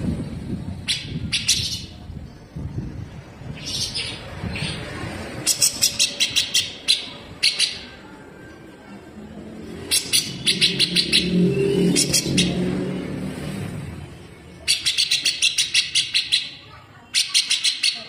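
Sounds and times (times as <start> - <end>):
bird giving harsh sharp calls: 0.8 - 1.9, 5.4 - 8.0, 9.8 - 12.8, 14.6 - 18.0.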